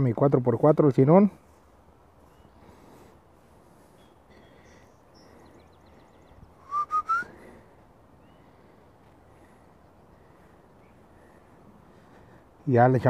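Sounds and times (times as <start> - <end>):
faint bird chirps: 2.2 - 12.4
rising whistled notes: 6.6 - 7.4.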